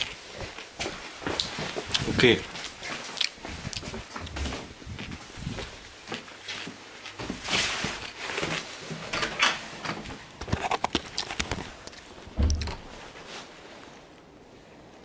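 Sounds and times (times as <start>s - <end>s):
clicks and knocks: 12.4s - 13.0s
heavy thump: 12.4s - 13.1s.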